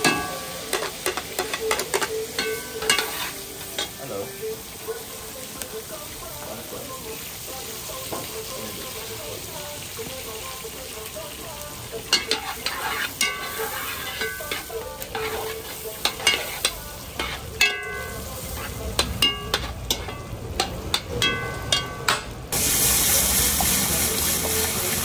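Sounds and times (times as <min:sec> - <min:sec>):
spoon clanking against pot: 0:00.0 - 0:04.0, 0:12.1 - 0:22.4
food sizzling: 0:00.0 - 0:25.0.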